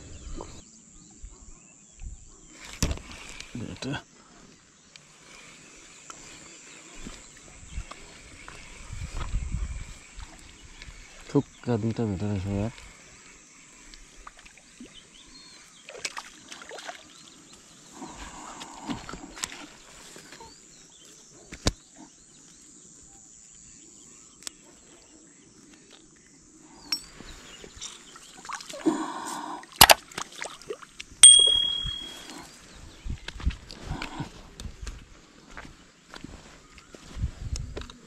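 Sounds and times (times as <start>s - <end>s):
water splashing and sloshing: 15.8s - 17.6s, 27.8s - 28.8s, 29.8s - 31.2s.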